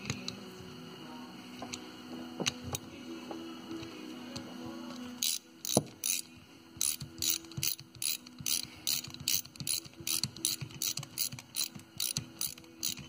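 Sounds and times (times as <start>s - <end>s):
ratchet wrench clicking: 5.2s - 13.0s.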